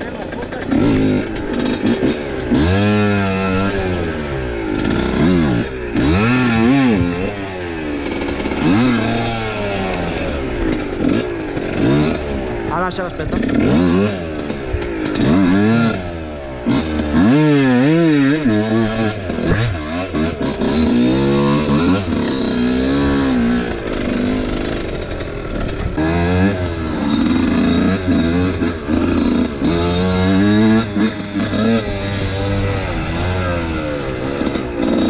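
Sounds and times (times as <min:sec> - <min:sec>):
dirt bike engine revving: 0:00.0 - 0:35.0.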